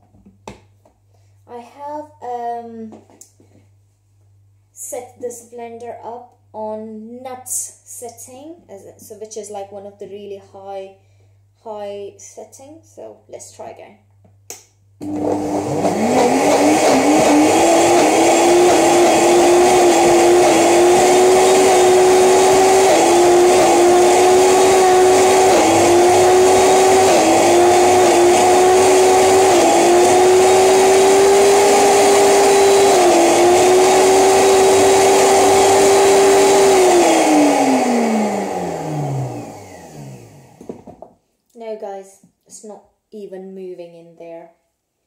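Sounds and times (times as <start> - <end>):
blender motor running: 15.0 - 40.9.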